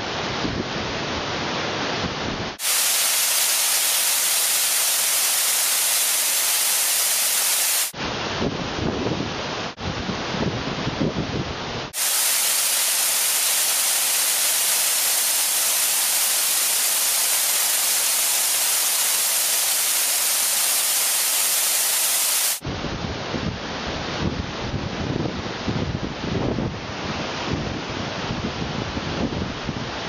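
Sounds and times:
waterfall rushing: 2.6 - 8.0, 12.0 - 22.6.

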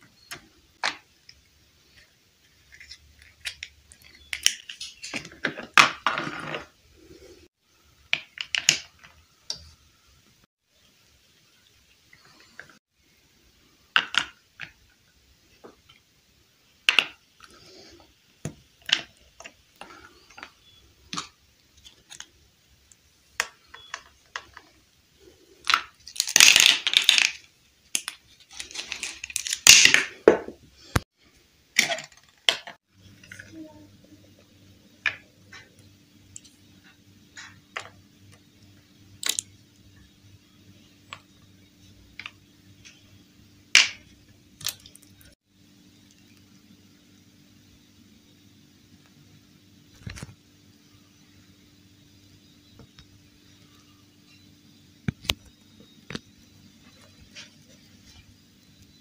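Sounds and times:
plastic toy pieces clicking: 25.6 - 30.0
plastic pieces rattling clatter: 25.7 - 30.4.

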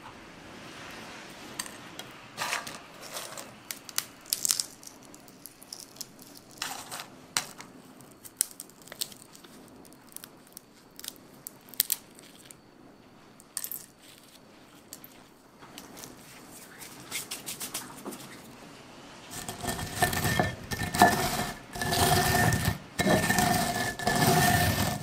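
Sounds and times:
bean shells cracking: 3.7 - 12.6, 13.4 - 14.3.

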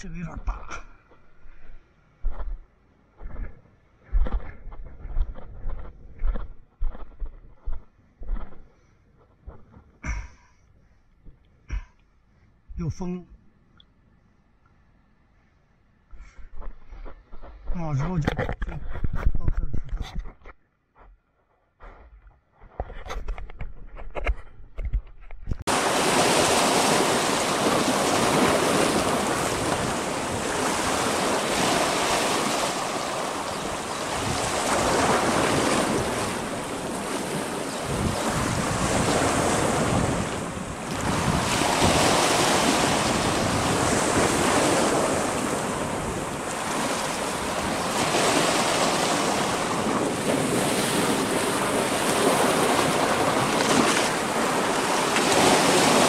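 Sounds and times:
wind buffeting microphone: 22.7 - 56.0
waves breaking against rocks: 25.7 - 56.0.

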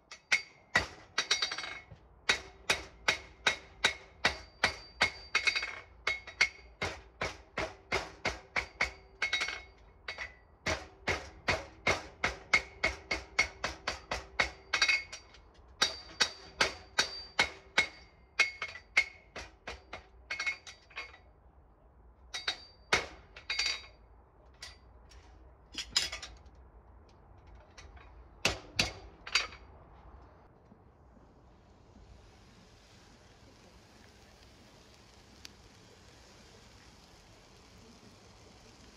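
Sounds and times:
hammer striking horseshoe on anvil: 0.1 - 21.1, 22.3 - 23.9, 28.4 - 29.6.

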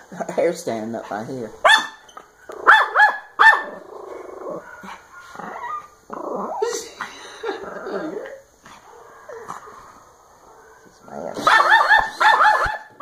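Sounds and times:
dog barking: 1.6 - 2.0, 2.6 - 3.8, 4.6 - 5.4, 10.6 - 13.0
dog growling and whining: 3.6 - 12.1.

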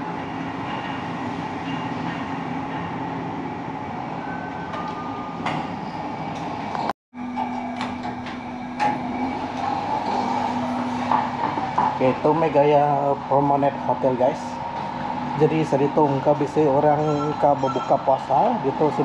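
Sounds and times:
lift doors sliding open: 0.0 - 12.5
lift mechanical hum: 0.0 - 19.0.

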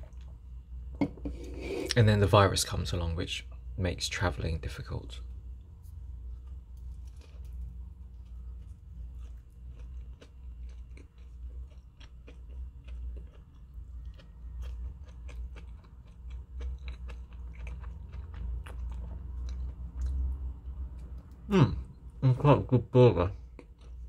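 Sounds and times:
low steady hum: 0.0 - 24.0
person chewing and crunching: 6.3 - 21.8, 23.3 - 24.0.

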